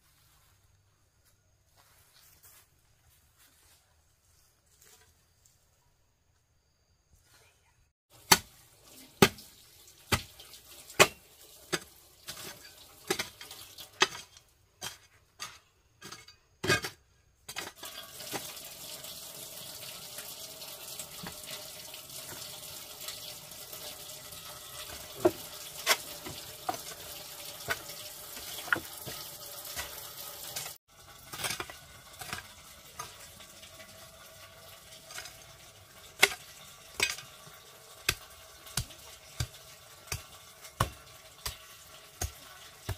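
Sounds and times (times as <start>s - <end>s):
water running into sink: 8.1s - 14.0s, 17.8s - 42.9s.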